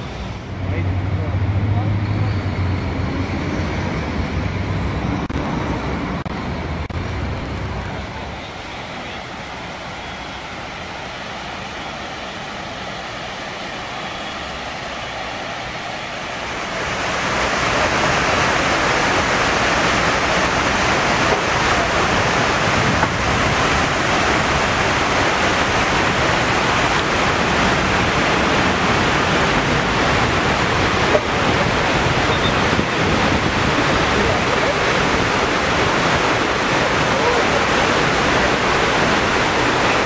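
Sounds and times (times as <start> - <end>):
water falling down walls: 15.7 - 40.0.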